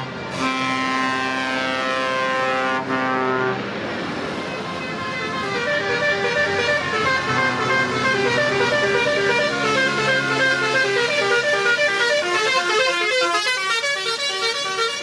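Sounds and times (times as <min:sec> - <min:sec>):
truck engines passing: 0:00.0 - 0:15.0
truck horn long blast: 0:00.3 - 0:03.8, 0:04.4 - 0:15.0
horn sounding a stepping melody: 0:04.7 - 0:15.0.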